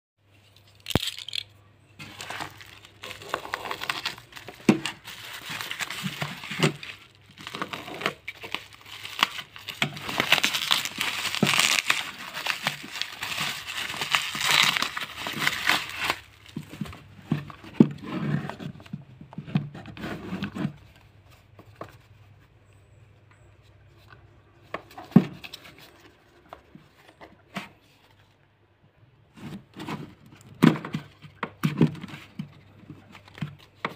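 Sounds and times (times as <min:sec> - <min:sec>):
bubble wrap crinkling and tearing: 0:00.7 - 0:01.4, 0:02.0 - 0:16.8
box knocking and scraping: 0:16.4 - 0:20.9.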